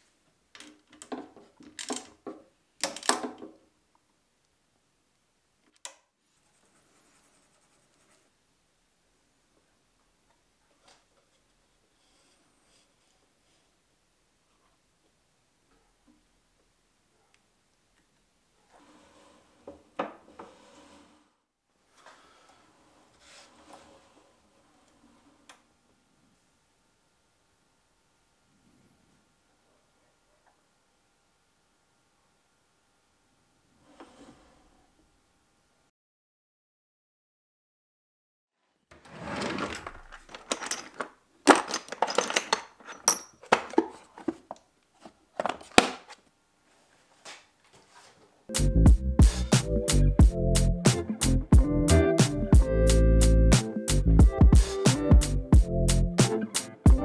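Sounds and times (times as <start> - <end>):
faint steady hum: 21.1 - 35.9
metal tools clinking: 39.8 - 43.6
music with steady beat: 48.5 - 57.0.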